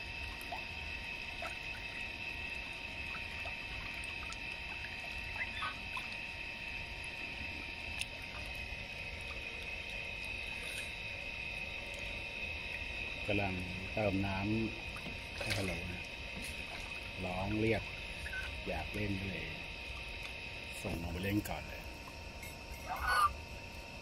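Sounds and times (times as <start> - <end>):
water running from hose into tub: 1.3 - 6.2, 12.7 - 19.6.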